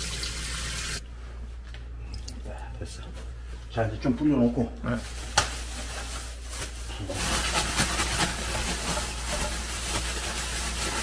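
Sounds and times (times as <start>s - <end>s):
plastic bag crinkling: 5.0s - 11.0s.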